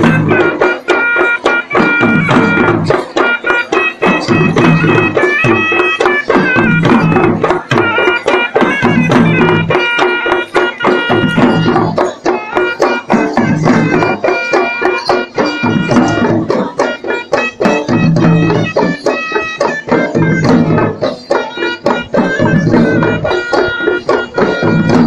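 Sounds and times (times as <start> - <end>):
fast dense drumming: 0.0 - 14.5
shrill reed wind instrument: 0.0 - 25.0.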